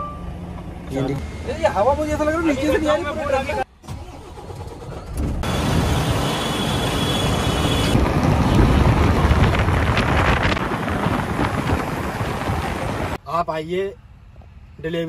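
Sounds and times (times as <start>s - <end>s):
truck driving at highway speed: 0.0s - 3.6s, 4.8s - 13.2s
wind on microphone: 7.6s - 13.2s.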